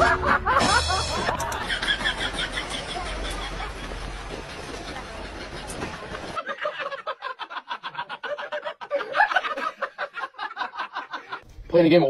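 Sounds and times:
steady background noise: 1.4s - 6.4s.

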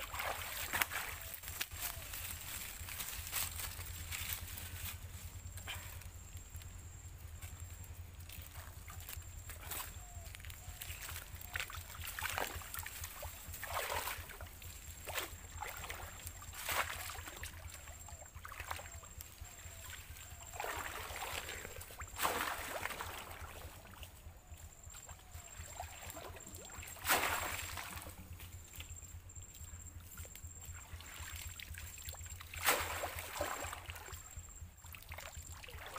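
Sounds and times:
shallow water splashing: 0.0s - 1.4s, 20.4s - 24.0s, 30.8s - 34.2s
man wading: 0.0s - 4.4s, 10.8s - 24.1s.

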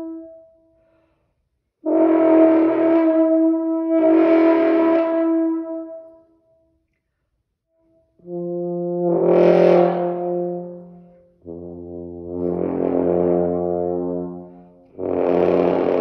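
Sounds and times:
french horn notes: 1.8s - 6.1s, 8.1s - 16.0s.

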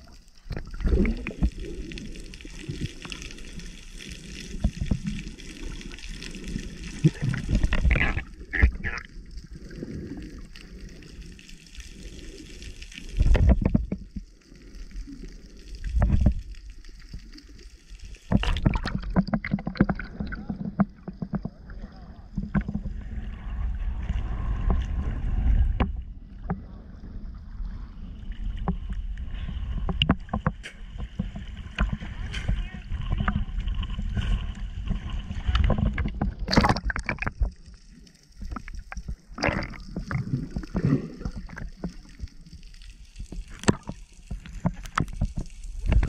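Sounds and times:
muffled underwater sound: 0.0s - 11.2s, 18.1s - 42.4s
low rushes of water: 0.0s - 46.0s
water splashing and lapping: 0.0s - 46.0s.

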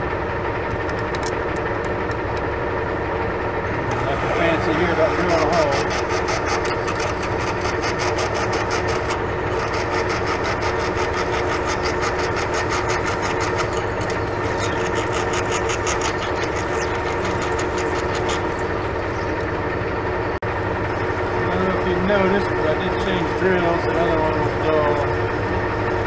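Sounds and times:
lathe drilling steel: 3.7s - 19.6s.

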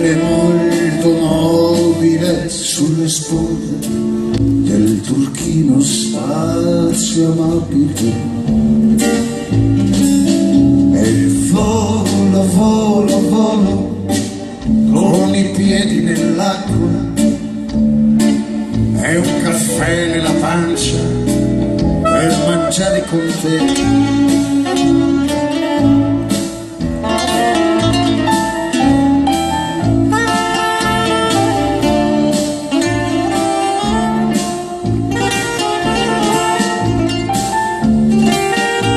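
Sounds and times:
man singing: 0.0s - 8.5s, 10.9s - 17.6s, 18.7s - 21.4s, 22.0s - 25.3s
acoustic guitar: 0.0s - 38.9s
double bass: 0.0s - 38.9s
drums: 0.0s - 38.9s
keyboards: 0.0s - 38.9s.

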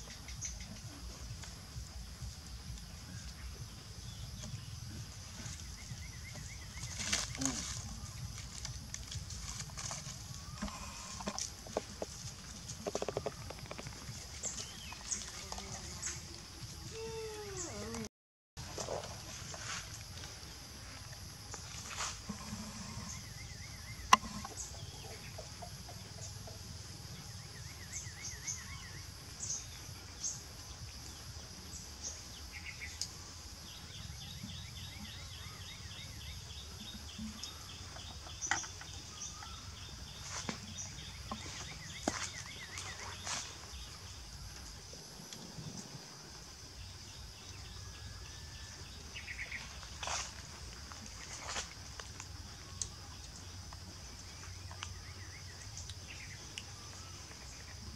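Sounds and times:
insects droning: 0.0s - 57.9s.

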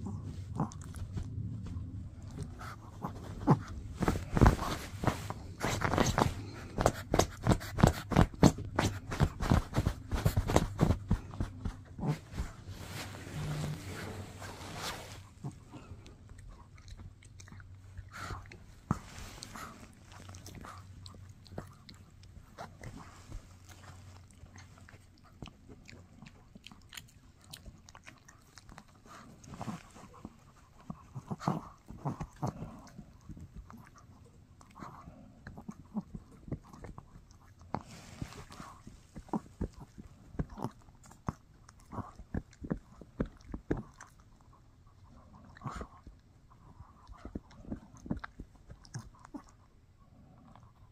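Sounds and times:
dog gnawing on a chew: 0.0s - 50.9s
teeth clicking on chew: 15.8s - 18.7s, 39.1s - 49.7s.

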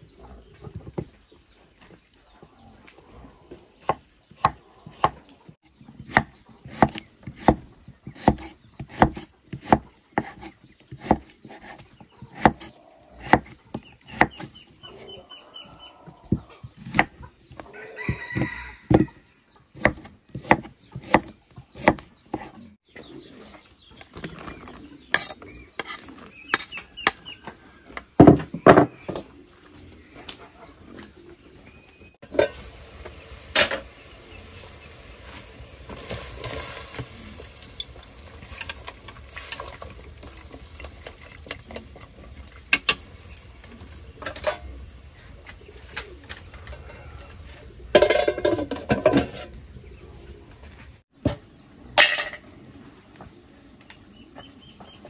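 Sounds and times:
rooster crowing: 17.7s - 19.1s.

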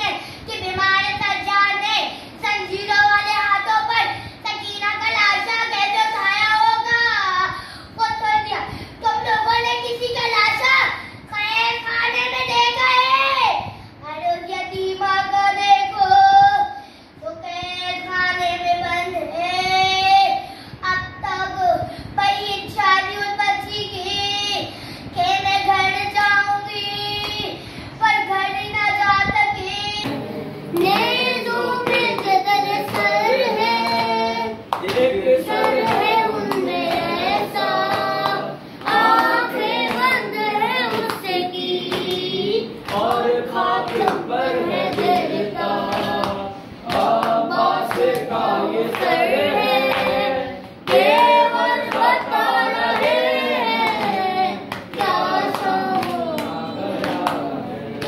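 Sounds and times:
children singing a lament: 22.5s - 58.0s.

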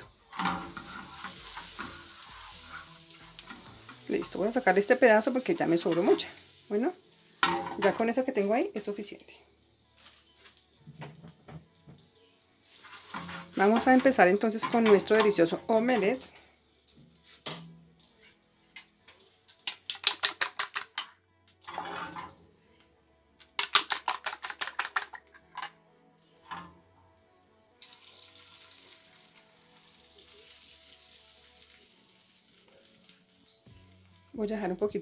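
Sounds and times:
egg sizzling in frying pan: 0.0s - 18.9s, 27.8s - 34.3s.

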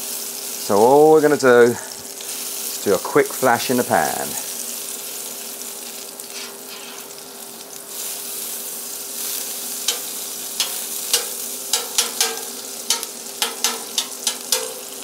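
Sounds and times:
butter sizzling on griddle: 0.0s - 15.0s
sharp crackles and clicks: 9.8s - 15.0s.

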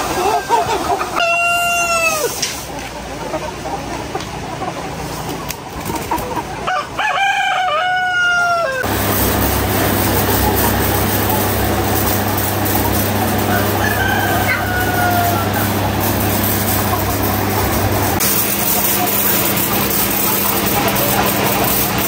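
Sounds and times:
farmyard background: 0.0s - 22.0s
low mechanical hum with hiss: 0.0s - 22.0s
rooster crowing: 1.2s - 2.3s, 6.7s - 8.9s, 13.2s - 16.0s.

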